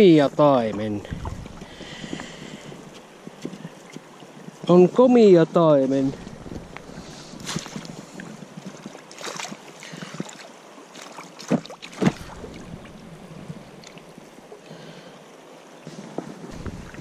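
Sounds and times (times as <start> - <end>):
river current rushing: 0.0 - 17.0
fish splashing in net: 8.8 - 12.8.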